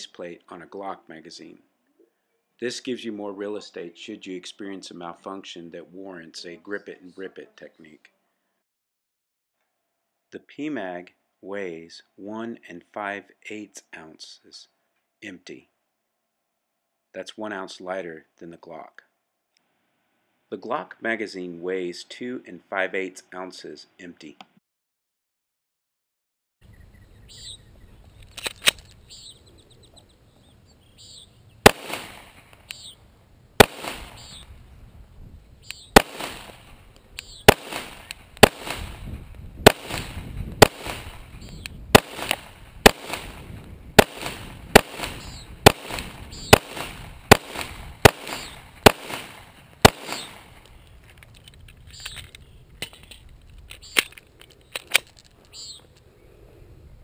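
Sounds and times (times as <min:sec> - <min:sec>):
birds chirping: 0:26.6 - 0:39.4, 0:40.6 - 0:43.1, 0:43.9 - 0:51.2, 0:51.8 - 0:52.8, 0:53.7 - 0:56.6
pistol shots with echo: 0:31.6 - 0:32.4, 0:33.6 - 0:34.4, 0:35.9 - 0:36.8, 0:37.5 - 0:50.6.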